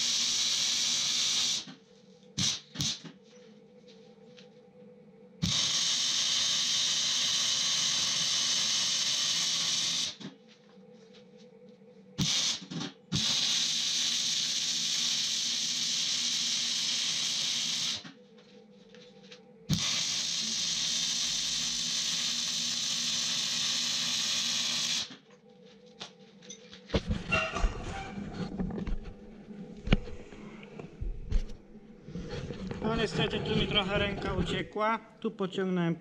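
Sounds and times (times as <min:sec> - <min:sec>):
arc welding crackling hiss: 0:00.0 - 0:01.8, 0:02.4 - 0:03.1, 0:05.4 - 0:10.3, 0:12.2 - 0:18.1, 0:19.7 - 0:25.2.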